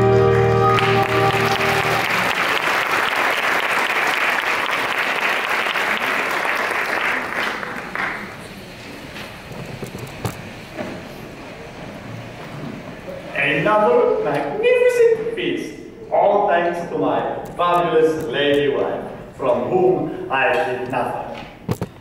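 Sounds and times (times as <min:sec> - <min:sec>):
song ending chord: 0:00.0 - 0:02.4
audience applauding: 0:00.0 - 0:08.8.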